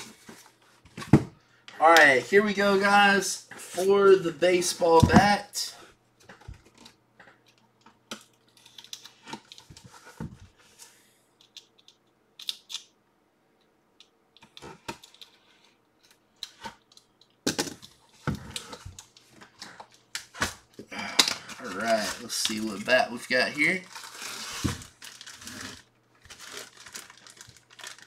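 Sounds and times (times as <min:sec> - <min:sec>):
tape crinkling and scraping: 0:17.9 - 0:28.0.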